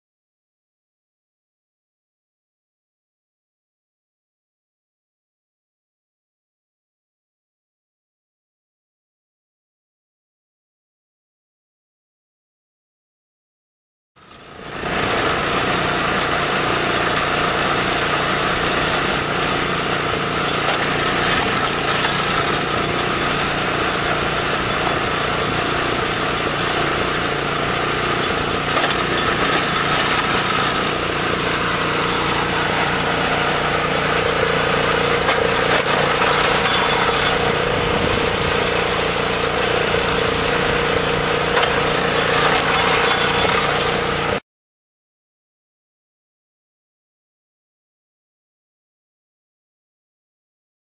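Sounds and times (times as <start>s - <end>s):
log splitter engine running: 14.2s - 44.4s.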